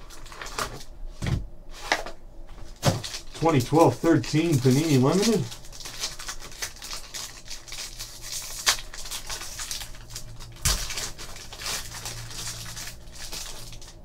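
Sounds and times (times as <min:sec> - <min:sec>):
foil wrapper crinkling and tearing: 0:00.0 - 0:00.9, 0:01.8 - 0:14.0.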